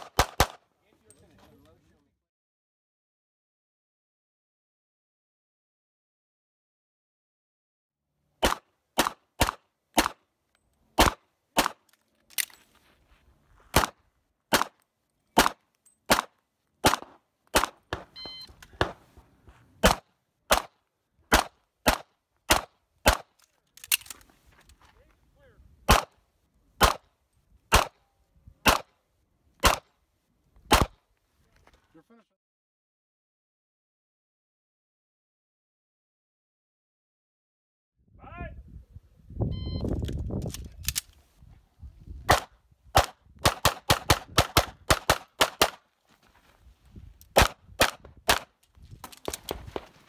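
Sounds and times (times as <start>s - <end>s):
pistol shots: 0.0s - 0.6s, 8.4s - 10.2s, 11.0s - 11.8s, 13.7s - 14.8s, 15.4s - 18.2s, 19.8s - 23.3s, 25.9s - 26.2s, 26.8s - 27.1s, 27.7s - 28.0s, 28.6s - 28.9s, 29.6s - 29.9s, 30.7s - 30.9s, 42.3s - 45.8s, 47.4s - 48.5s.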